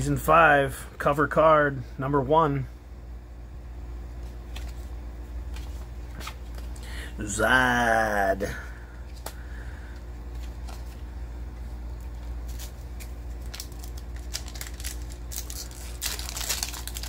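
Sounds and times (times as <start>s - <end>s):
steady low hum: 0.0s - 17.0s
foil pack crinkling: 11.9s - 17.0s.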